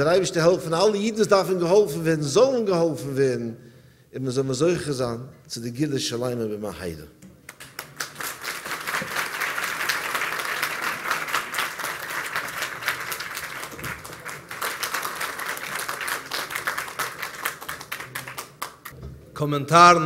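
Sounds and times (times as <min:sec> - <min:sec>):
audience applauding: 0:07.5 - 0:19.0.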